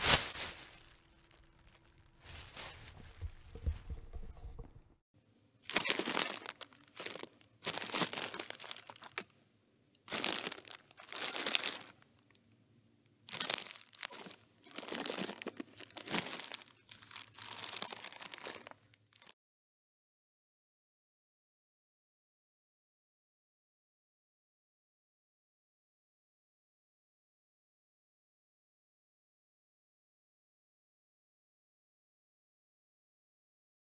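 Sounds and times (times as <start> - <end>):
crumpling and crinkling: 0.0 - 4.7, 5.6 - 9.4, 10.0 - 12.4, 13.2 - 19.4.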